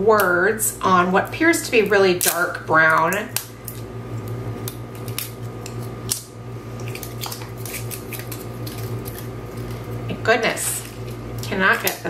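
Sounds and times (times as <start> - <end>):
steady low hum: 0.0 - 12.0
plastic wrapping crinkling: 6.8 - 10.1.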